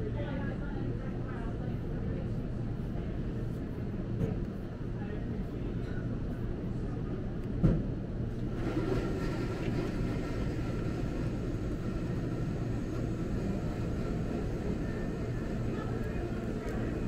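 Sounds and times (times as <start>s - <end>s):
low indoor room rumble: 0.0s - 17.0s
thump: 7.6s - 7.9s
faint murmur: 8.6s - 17.0s.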